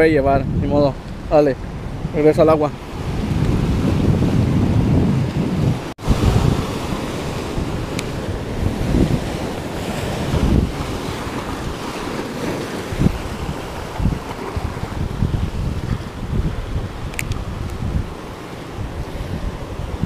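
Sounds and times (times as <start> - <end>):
wind buffeting microphone: 0.0 - 20.0
surf breaking over rocks: 2.2 - 20.0.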